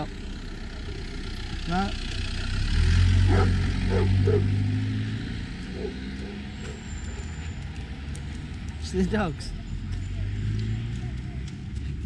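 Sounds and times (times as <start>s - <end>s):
vehicle engine running: 0.0s - 12.0s
dog barking: 3.3s - 4.6s, 5.7s - 6.8s.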